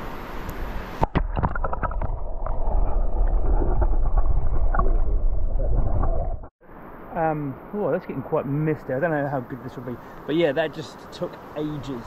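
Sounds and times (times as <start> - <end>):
muffled underwater river rush: 1.0 - 7.1.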